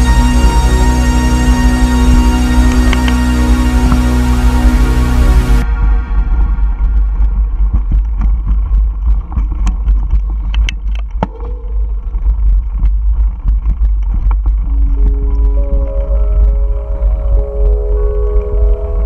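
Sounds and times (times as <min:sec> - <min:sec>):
wind rumble on microphone: 0:00.0 - 0:19.0
bike clicks and rattles: 0:07.6 - 0:15.4.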